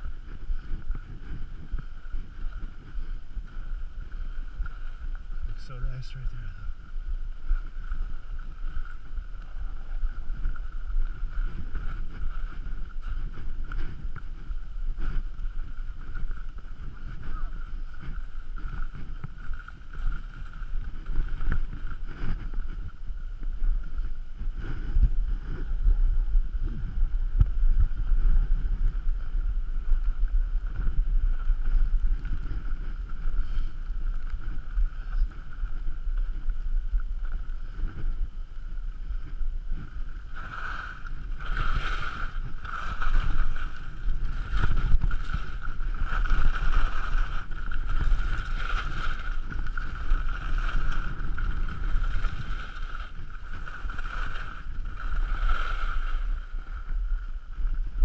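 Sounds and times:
wind on microphone: 0.0 - 58.0
skis hissing on snow: 40.3 - 56.3.

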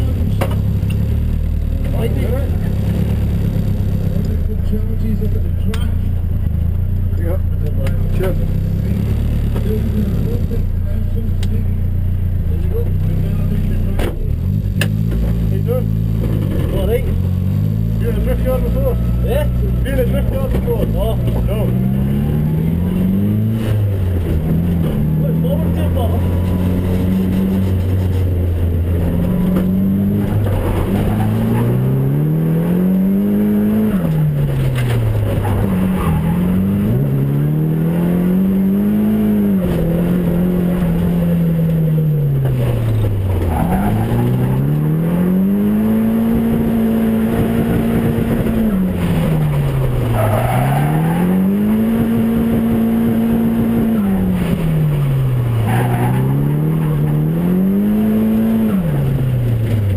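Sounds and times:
car engine revving hard: 14.4 - 59.9.

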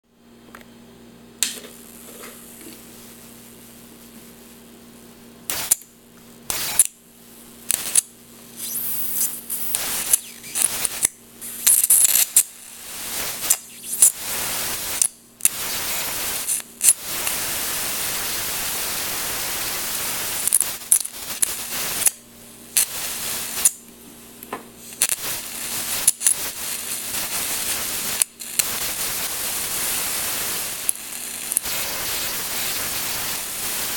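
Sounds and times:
low steady hum: 0.1 - 12.8
electric arc crackling and hissing: 1.4 - 33.9.

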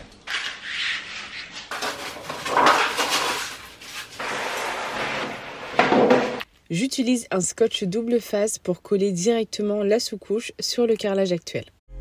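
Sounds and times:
plastic sheet rustling and crinkling: 0.2 - 6.4.

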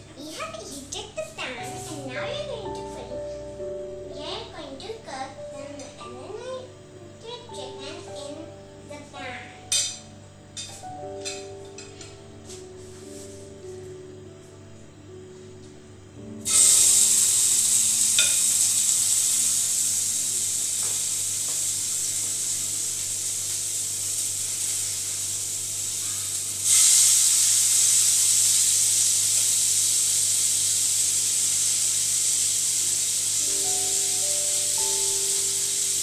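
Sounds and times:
chicken sizzling in a frying pan: 16.4 - 36.0.

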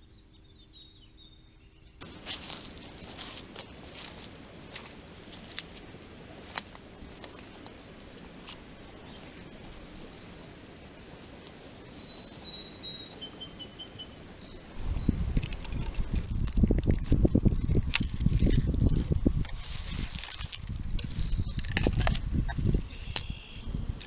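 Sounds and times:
footsteps on dry leaves: 2.0 - 13.5, 16.1 - 21.4
bird whistling and chirping: 12.0 - 14.3, 22.9 - 23.6.

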